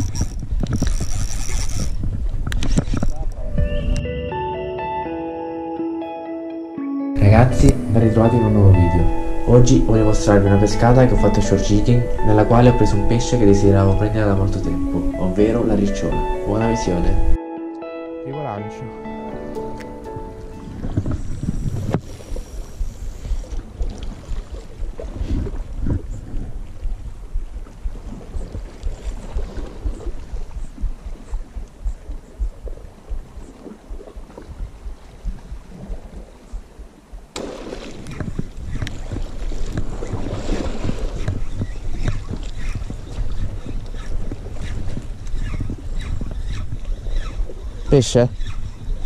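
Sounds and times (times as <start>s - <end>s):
fishing reel cranking: 0.0s - 3.2s, 21.1s - 23.6s, 41.2s - 49.0s
fishing rod handling noise: 0.0s - 3.4s
gusty wind on microphone: 0.0s - 4.1s, 20.5s - 49.0s.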